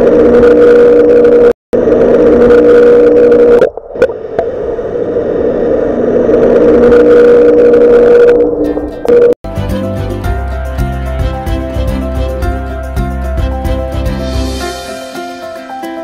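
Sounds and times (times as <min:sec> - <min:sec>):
electronic hum with hiss: 0:00.0 - 0:09.4.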